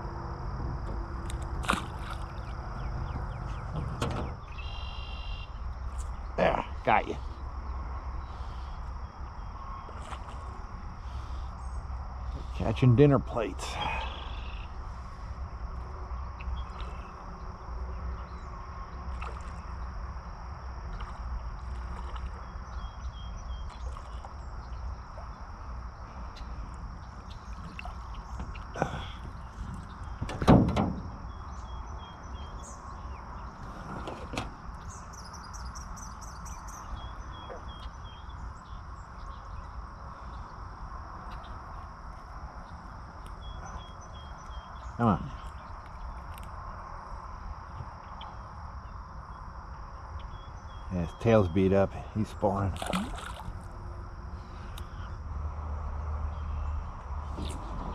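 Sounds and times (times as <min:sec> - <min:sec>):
low rumble: 0:00.0 - 0:12.6
high insect drone: 0:00.0 - 0:57.9.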